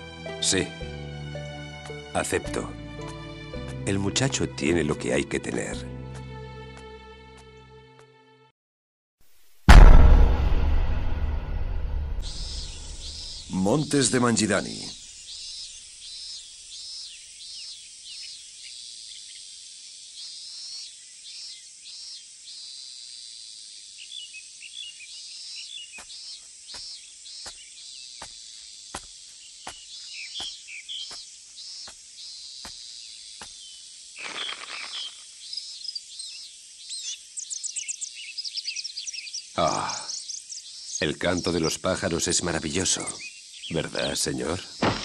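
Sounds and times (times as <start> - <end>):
insect hiss: 11.8 - 45.0
small birds chirping: 12.2 - 45.0.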